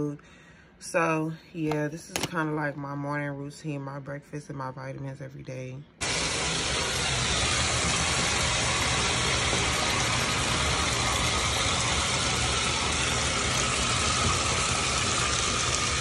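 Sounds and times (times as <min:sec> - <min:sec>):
water pouring into bathtub: 0:06.0 - 0:16.0.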